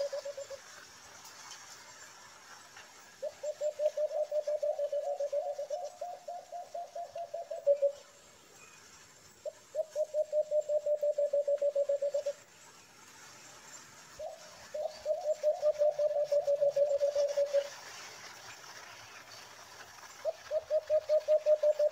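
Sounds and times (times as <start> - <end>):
dove hooting: 0.0 - 0.8, 3.2 - 8.1, 9.4 - 12.4, 14.2 - 17.9, 20.2 - 21.9.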